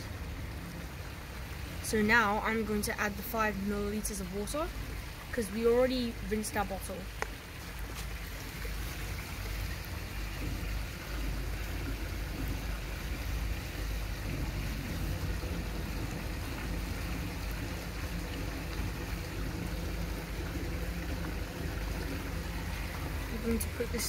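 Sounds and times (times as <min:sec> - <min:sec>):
rushing pond water: 0:00.0 - 0:24.0
low rumble: 0:09.7 - 0:24.0.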